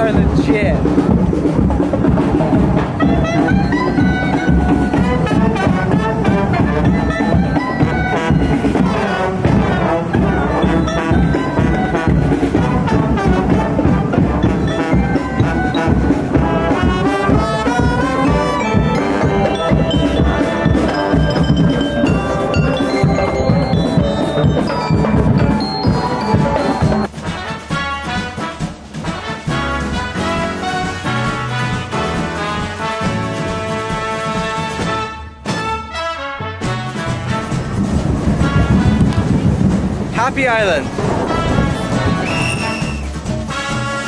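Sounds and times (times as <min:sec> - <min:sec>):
marching brass band playing: 0:00.0 - 0:44.0
snare drums: 0:00.0 - 0:44.0
mallet-struck bar instrument: 0:14.2 - 0:27.1.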